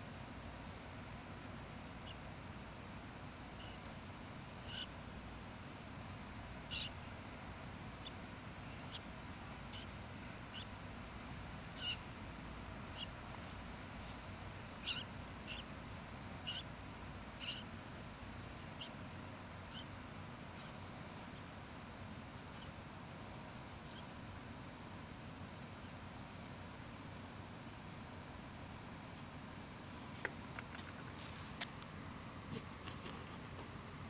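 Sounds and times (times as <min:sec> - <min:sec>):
steady low hiss: 0:00.0 - 0:34.0
animal high-pitched squeaks: 0:04.7 - 0:04.9, 0:06.7 - 0:07.0, 0:11.8 - 0:12.0, 0:14.8 - 0:15.6, 0:17.4 - 0:17.6.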